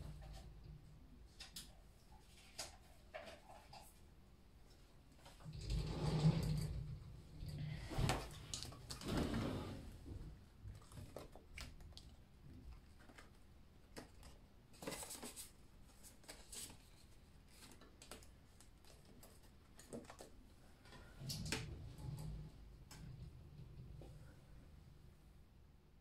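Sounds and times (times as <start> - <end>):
paper rustling: 12.8 - 20.3.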